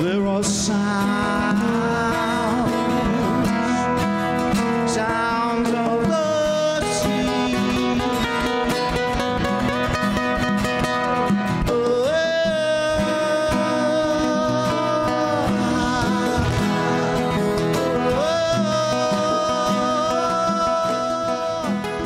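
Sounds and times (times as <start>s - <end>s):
nylon-string guitar: 0.0s - 22.0s
steel-string acoustic guitar: 0.0s - 22.0s
congas: 5.7s - 22.0s
man singing held notes: 11.7s - 22.0s.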